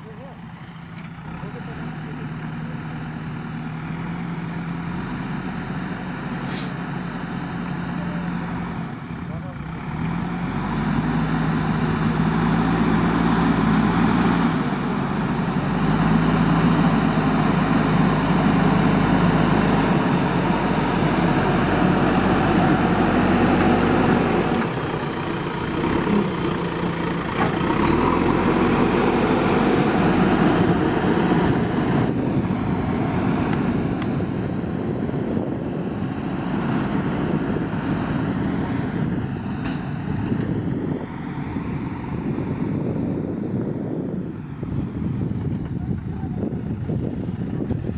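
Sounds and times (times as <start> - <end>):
diesel engine under load: 0.0 - 47.9.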